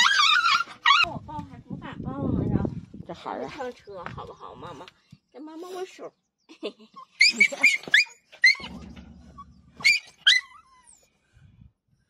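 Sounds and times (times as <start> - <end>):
small dog yelping: 0.0 - 1.1, 7.1 - 11.0
dog growling: 8.6 - 9.8.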